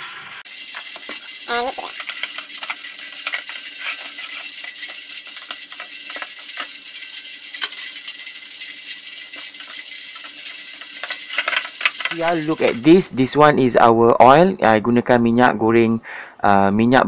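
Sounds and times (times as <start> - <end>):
fish squelching in flour coating: 0.5 - 12.9.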